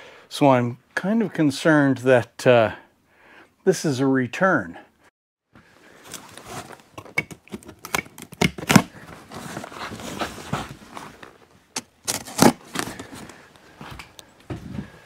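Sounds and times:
cardboard rustling and scraping: 5.9s - 13.5s.

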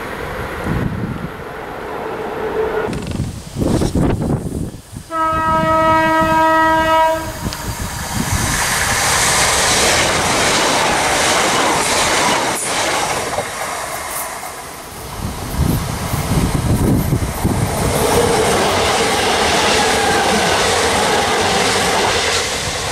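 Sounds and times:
train wheels rushing on rail: 0.0s - 22.9s
train horn: 5.1s - 7.7s.

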